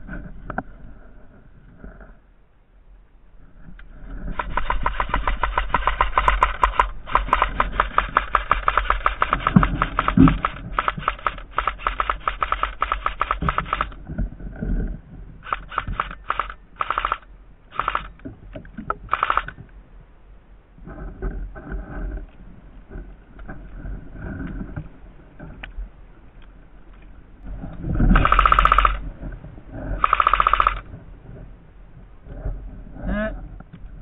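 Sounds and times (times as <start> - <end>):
airsoft rifle firing bursts: 4.3 - 14.0, 15.4 - 18.1, 19.1 - 19.5, 28.2 - 29.0, 30.0 - 30.8.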